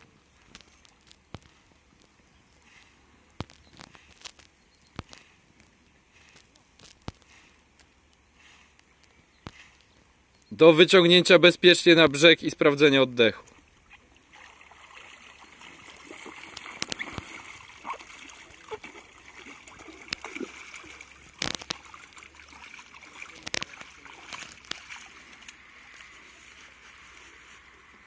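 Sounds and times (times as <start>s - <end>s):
water splashing and sloshing: 13.4s - 28.0s.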